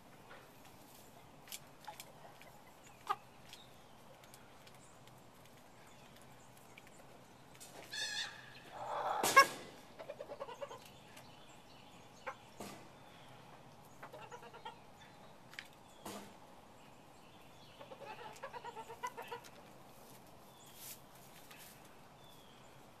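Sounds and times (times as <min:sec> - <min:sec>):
rooster clucking: 0:08.0 - 0:10.9, 0:17.8 - 0:19.6.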